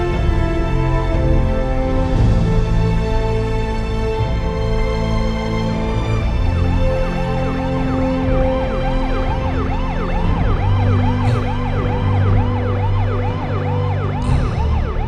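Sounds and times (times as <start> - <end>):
background music: 0.0 - 15.0
siren yelping: 8.6 - 15.0.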